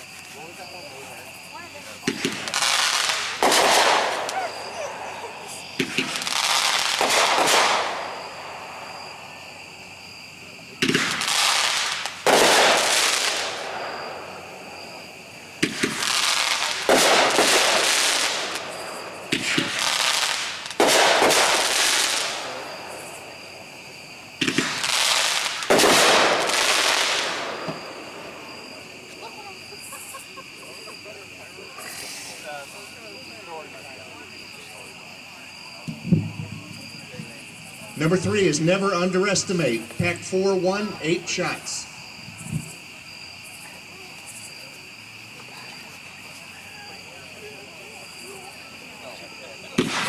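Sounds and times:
firework launch thumps: 2.0s - 4.4s, 5.8s - 8.0s, 10.8s - 12.8s, 15.6s - 17.8s, 19.2s - 19.8s, 24.4s - 27.9s, 35.8s - 37.4s, 49.7s - 50.0s
firework shell break hissing: 2.0s - 9.1s, 10.8s - 14.4s, 15.6s - 23.4s, 24.4s - 30.1s, 31.7s - 32.9s, 49.7s - 50.0s.

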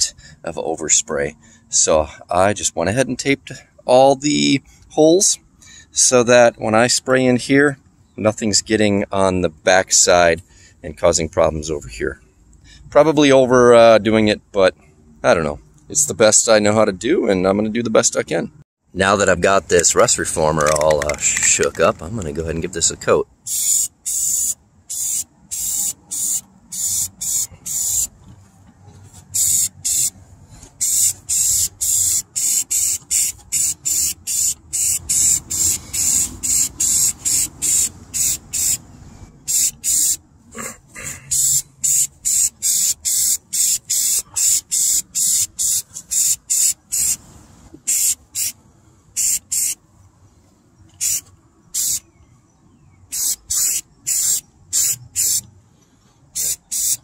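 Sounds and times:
aerosol spray can bursts: 23.5s - 28.1s, 29.4s - 30.1s, 30.8s - 38.8s, 39.5s - 40.2s, 41.3s - 47.2s, 47.9s - 48.6s, 49.2s - 49.8s, 51.0s - 52.0s, 53.1s - 55.4s, 56.4s - 57.0s.

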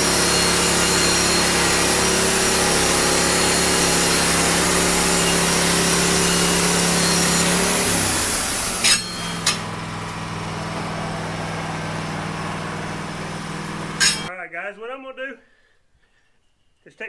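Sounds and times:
saw blade hissing in wood: 0.0s - 9.7s, 13.2s - 14.3s
band sawmill motor hum: 0.0s - 14.3s
sharp metal clanks: 8.7s - 9.8s, 14.0s - 14.3s.

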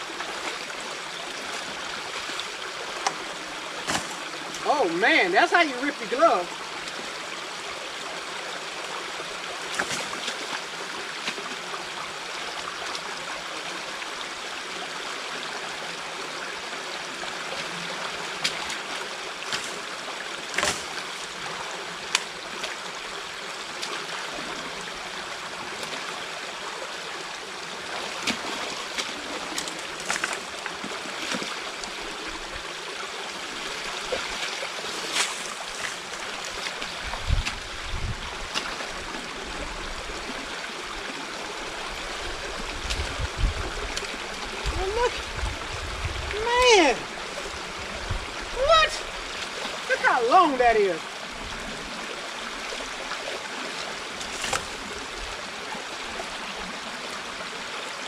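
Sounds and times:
water running: 1.3s - 7.0s, 41.7s - 51.0s.

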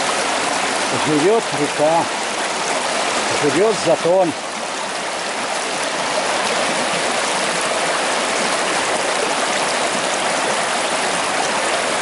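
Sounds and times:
river water rushing: 0.0s - 12.0s.

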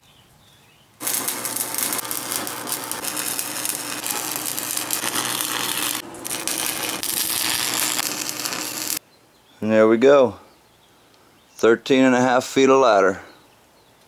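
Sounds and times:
welding arc crackling and sizzling: 1.0s - 9.0s.

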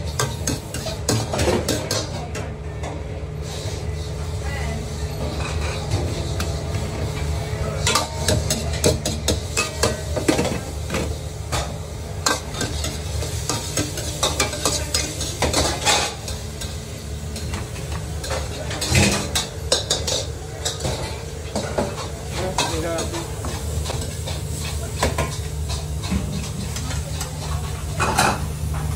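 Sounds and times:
food sizzling: 3.4s - 28.9s.

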